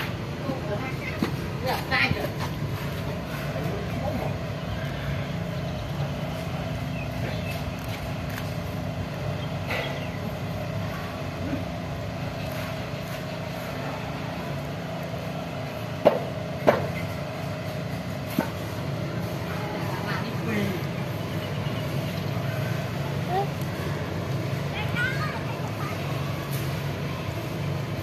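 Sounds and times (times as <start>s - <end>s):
low mechanical hum: 0.0s - 28.0s
sharp knocks: 16.0s - 17.0s.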